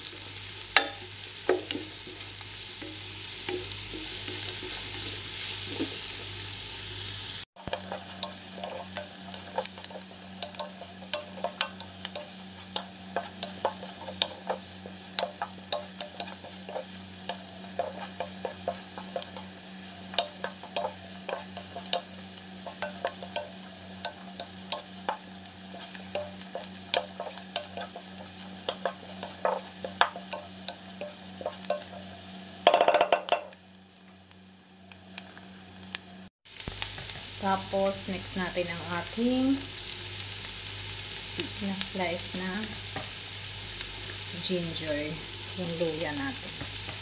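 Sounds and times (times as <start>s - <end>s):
garlic and onion sizzling in oil: 0.0s - 47.0s
wooden spatula scraping pan: 7.6s - 32.1s.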